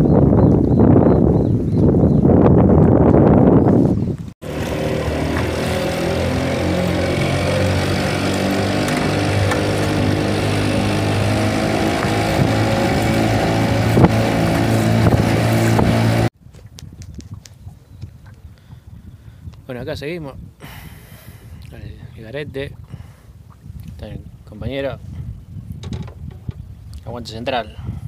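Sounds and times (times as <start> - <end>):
outboard motor running: 4.4 - 16.3.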